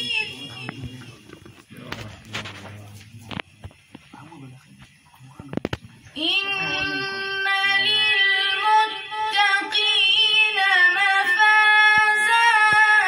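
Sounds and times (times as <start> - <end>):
boy chanting melodically: 0.0 - 1.4, 6.1 - 13.0.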